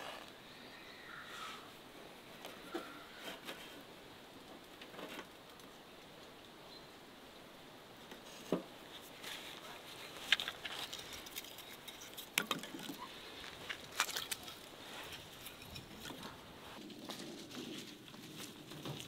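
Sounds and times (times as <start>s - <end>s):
firewood knocking and clattering: 10.3s - 19.0s.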